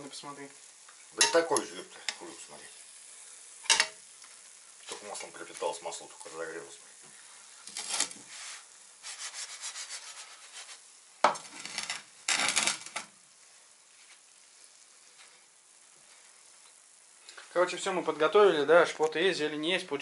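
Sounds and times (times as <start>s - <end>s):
bread frying in oil: 0.0s - 20.0s
fork scraping frying pan: 1.2s - 2.2s, 3.6s - 4.0s, 7.6s - 13.1s.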